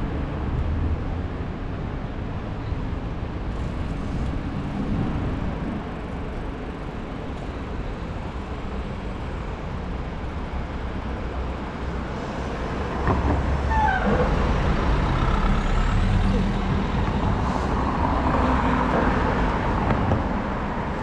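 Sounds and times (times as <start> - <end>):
city street traffic rumble: 0.0 - 21.0
heavy vehicle passing: 11.4 - 21.0.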